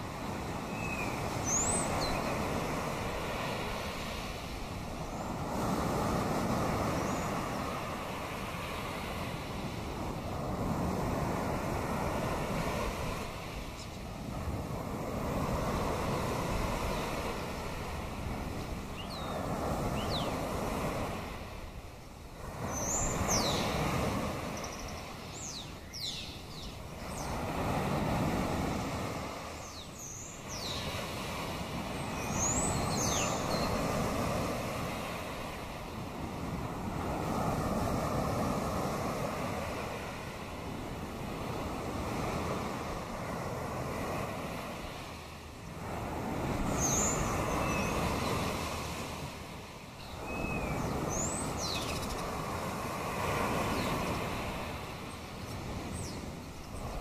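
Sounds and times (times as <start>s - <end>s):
sea waves washing on shore: 0.0s - 57.0s
short high bird calls: 50.0s - 52.3s.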